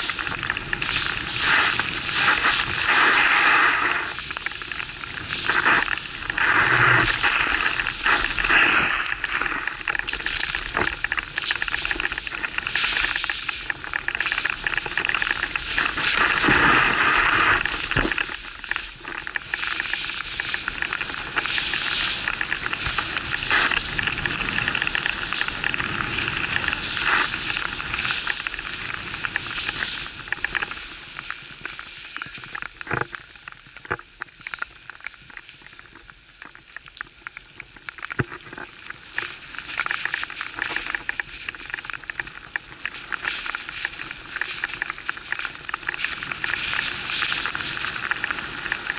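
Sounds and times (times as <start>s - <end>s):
skis hissing through powder snow: 0.0s - 10.7s, 15.3s - 18.9s, 21.1s - 30.2s, 46.0s - 48.9s.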